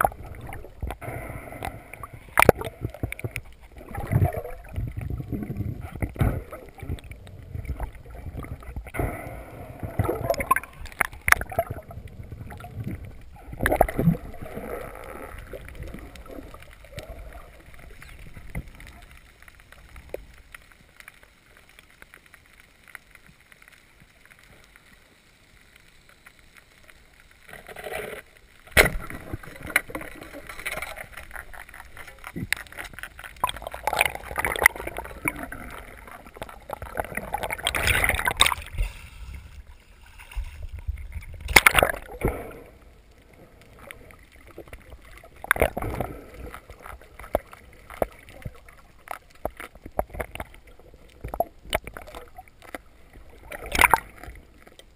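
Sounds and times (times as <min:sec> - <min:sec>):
crackling rustling water noise: 0:00.0 - 0:54.9.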